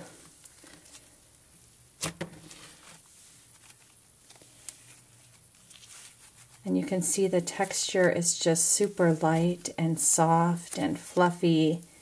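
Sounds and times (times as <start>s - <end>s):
soft crackling: 2.4s - 12.0s.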